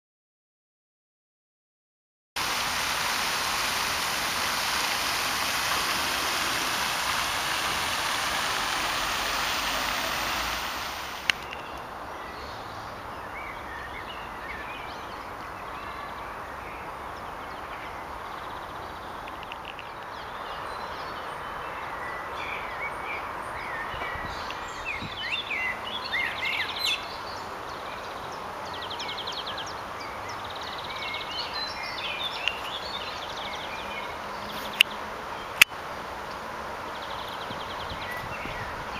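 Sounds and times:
loud rushing noise: 0:02.4 - 0:11.3
songbirds chirping and trilling: 0:03.0 - 0:38.9.

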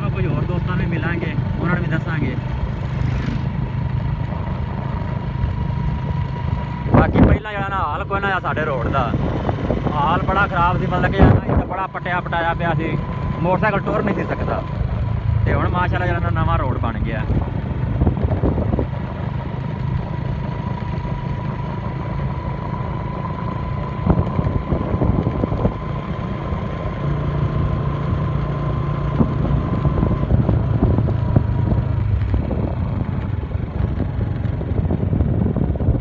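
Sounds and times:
motorcycle engine cruising: 0:00.0 - 0:36.0
faint high whine: 0:05.8 - 0:17.1.

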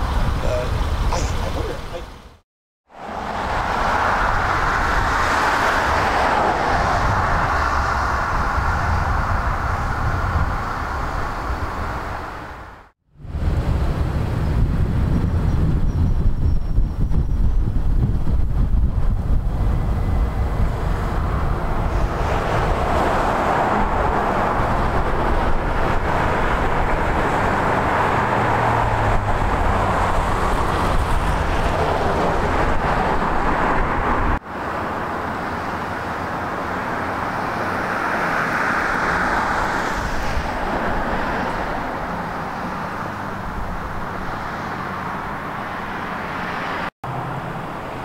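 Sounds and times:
wind rumbling on microphone: 0:00.0 - 0:02.4, 0:03.0 - 0:48.0
cars passing: 0:00.0 - 0:15.9, 0:17.6 - 0:48.0.

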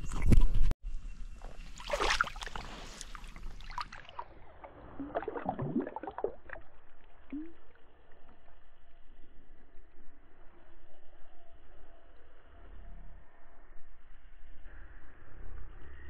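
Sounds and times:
fish splashing in shallow water: 0:01.4 - 0:08.2.

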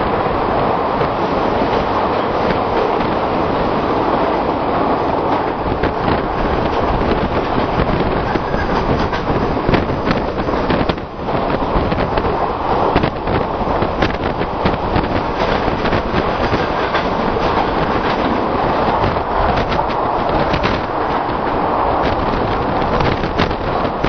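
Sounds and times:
train rumbling on rails: 0:00.0 - 0:24.0
wheels clicking and knocking: 0:05.2 - 0:24.0.

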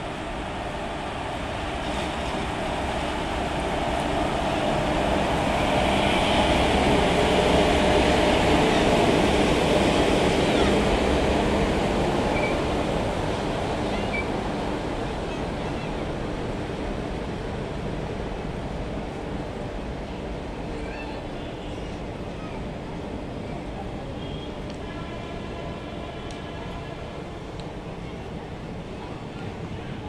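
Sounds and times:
train rushing past: 0:00.0 - 0:20.4.

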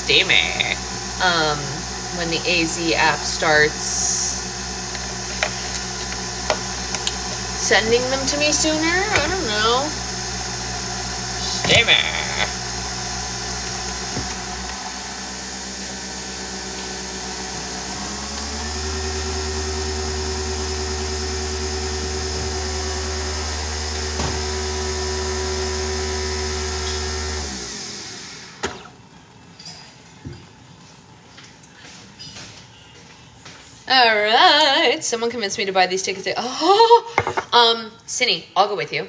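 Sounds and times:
appliance motor humming: 0:00.0 - 0:28.6.

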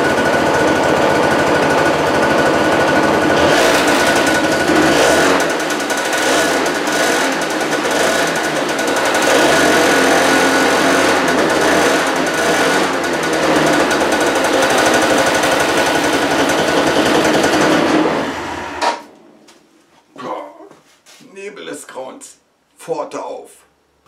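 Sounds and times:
small scooter engine revving: 0:00.0 - 0:19.1.

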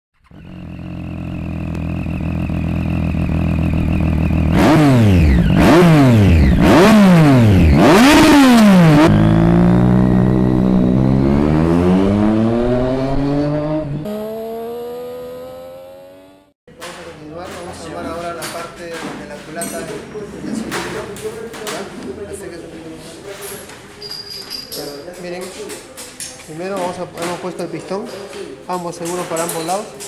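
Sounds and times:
motorcycle engine revving: 0:00.2 - 0:16.6.

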